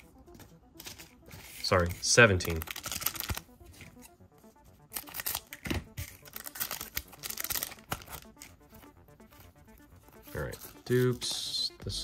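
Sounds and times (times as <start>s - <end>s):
wrapper crinkling while torn: 2.4s - 3.5s, 4.8s - 8.6s.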